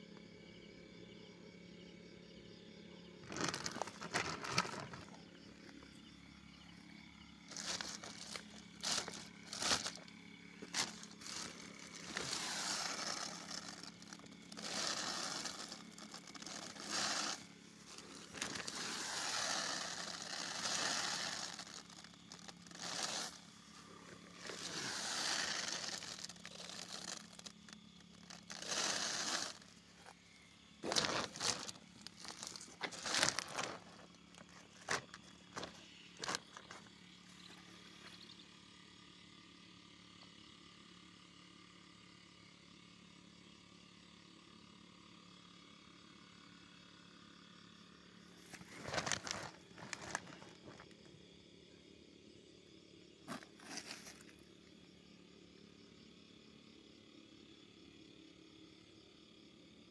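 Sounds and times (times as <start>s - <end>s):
plastic bags rustling and crinkling: 3.3s - 5.2s, 7.5s - 23.4s, 24.1s - 30.1s, 30.8s - 36.8s, 48.5s - 50.9s, 53.3s - 54.3s.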